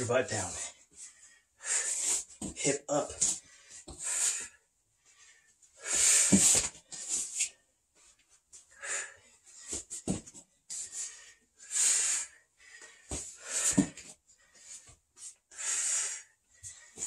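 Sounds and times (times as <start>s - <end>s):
man breathing hard: 0.6s - 2.5s, 3.2s - 7.5s, 8.7s - 10.1s, 10.7s - 17.0s
body thumping on foam mats: 9.8s - 10.4s.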